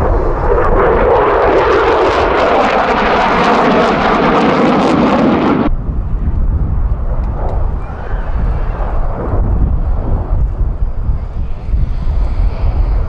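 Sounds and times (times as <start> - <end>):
jet engine roaring: 0.0 - 13.0
faint low rumble: 5.7 - 13.0.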